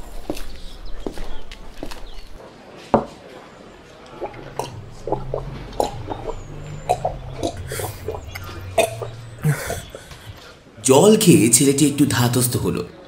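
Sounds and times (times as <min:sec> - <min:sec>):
person gulping water: 0:04.1 - 0:10.5.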